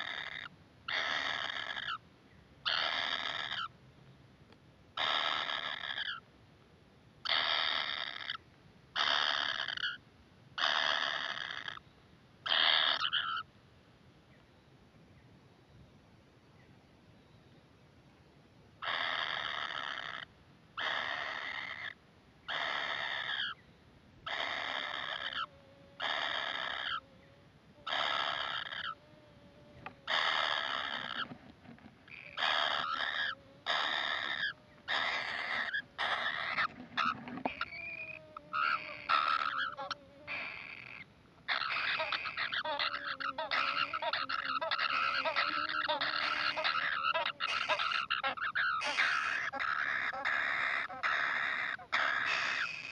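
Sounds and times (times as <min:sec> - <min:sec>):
nestlings begging calls: 0:00.0 - 0:02.0, 0:02.7 - 0:03.7, 0:05.0 - 0:06.2, 0:07.2 - 0:08.4, 0:09.0 - 0:10.0, 0:10.6 - 0:11.8, 0:12.5 - 0:13.5, 0:18.8 - 0:23.6, 0:24.3 - 0:29.0, 0:29.7 - 0:31.3, 0:32.0 - 0:52.9.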